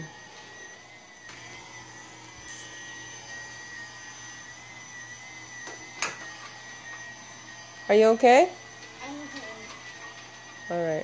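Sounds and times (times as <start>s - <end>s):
toy vacuum cleaner whine: 0.0s - 11.0s.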